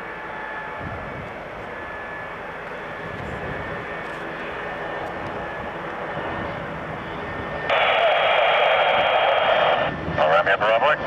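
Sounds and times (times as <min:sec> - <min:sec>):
turboprop engines droning: 0:00.0 - 0:11.0
radio hiss: 0:07.7 - 0:11.0.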